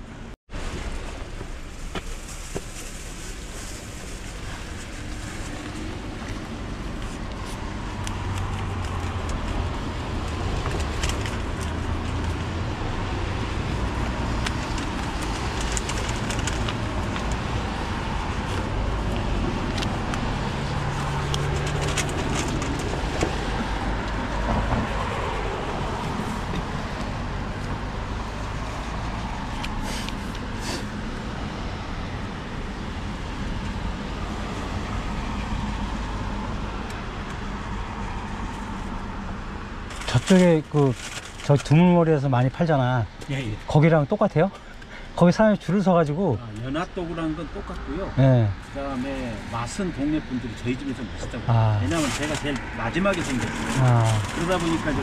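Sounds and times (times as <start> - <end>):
road traffic rumbling: 0.0 - 55.0
vehicle passing: 4.5 - 39.4.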